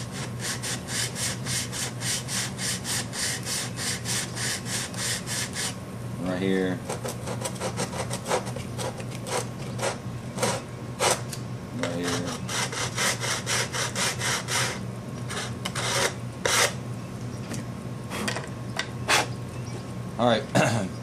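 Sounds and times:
sanding block scratching wood: 0.0 - 5.8, 7.2 - 11.2, 11.9 - 16.8.

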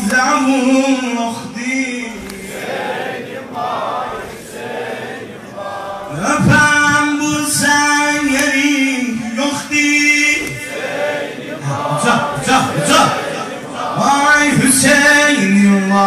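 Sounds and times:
voice singing over loudspeaker: 0.0 - 16.0
men chanting together: 2.2 - 15.5.

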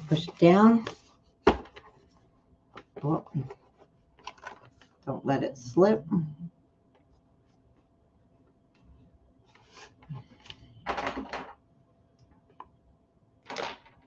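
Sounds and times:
cardstock rustling and scraping: 9.5 - 10.5.

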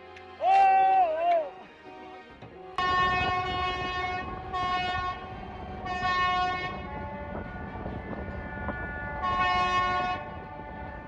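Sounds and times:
steady horns: 2.2 - 11.0
tugboat horn blasts: 2.5 - 11.0.

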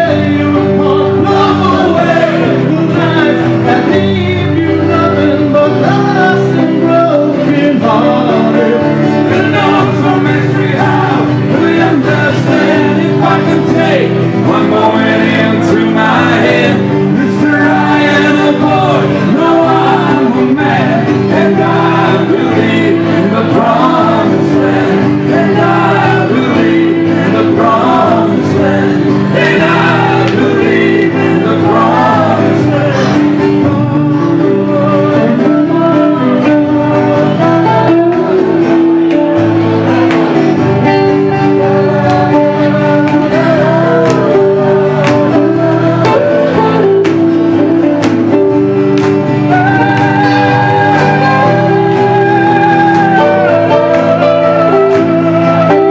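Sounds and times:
men singing together: 0.0 - 55.9
rock band playing guitars: 0.0 - 55.9.

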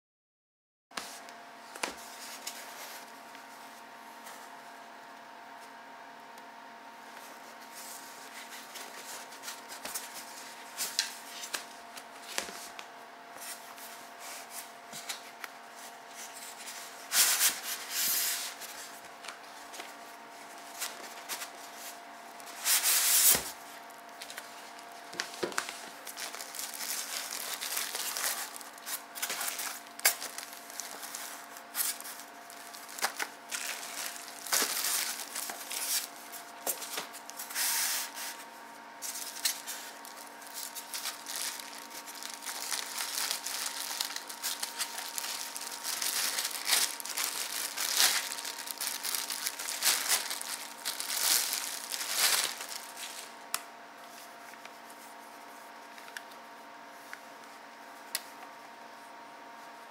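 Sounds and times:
faint steady hum: 1.0 - 59.9
plastic wrapping crinkling: 20.6 - 38.4, 39.0 - 53.3.

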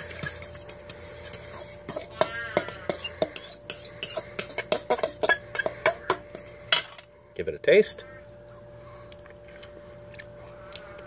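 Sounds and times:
spoon scraping a bowl: 0.0 - 7.0.

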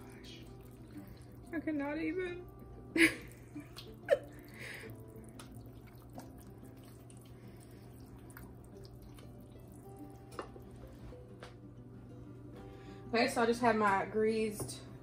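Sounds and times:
spatula stirring thick sauce: 4.9 - 10.4.

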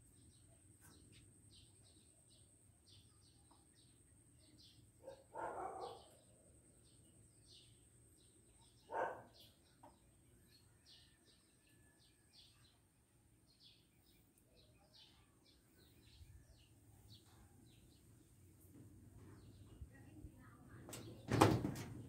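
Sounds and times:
small birds chirping: 0.1 - 21.8
dog barking: 5.0 - 6.2, 8.9 - 9.5.

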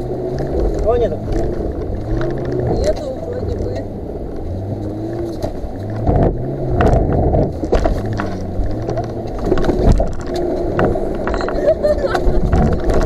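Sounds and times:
off-road vehicle engine revving: 0.0 - 13.0
vehicle body knocking and clattering: 5.2 - 13.0.

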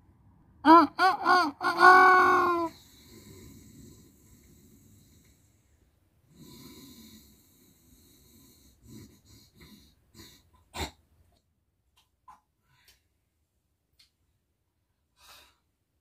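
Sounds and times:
person breathing softly: 2.7 - 10.5, 15.1 - 15.8.

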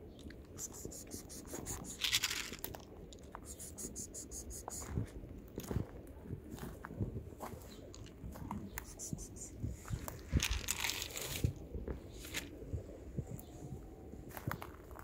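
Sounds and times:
quick high ticking: 0.6 - 2.6.

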